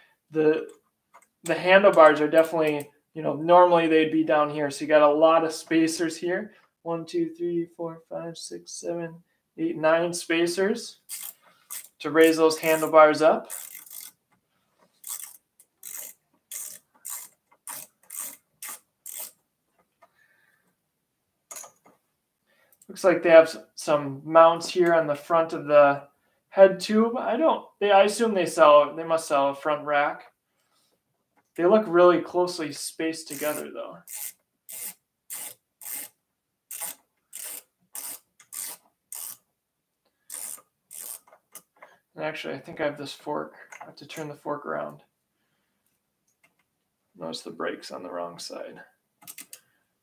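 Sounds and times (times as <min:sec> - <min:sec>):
ratchet wrench clicking: 0:11.1 - 0:12.0, 0:13.5 - 0:14.2, 0:15.0 - 0:19.4, 0:33.3 - 0:39.4, 0:40.3 - 0:41.6, 0:49.2 - 0:49.6.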